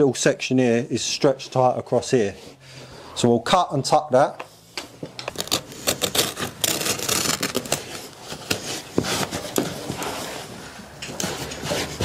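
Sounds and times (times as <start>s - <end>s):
carpet scraping and rustling: 4.9s - 12.0s
knife cutting carpet: 11.2s - 12.0s.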